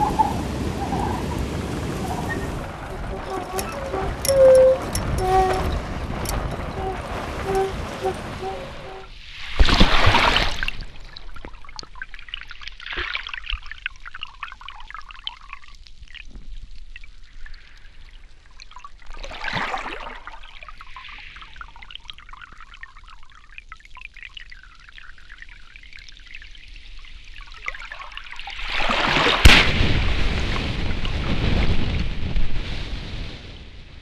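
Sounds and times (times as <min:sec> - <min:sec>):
rush of water: 0:00.0 - 0:13.7, 0:17.3 - 0:21.7, 0:27.5 - 0:33.8
water trickling and lapping: 0:00.0 - 0:29.8.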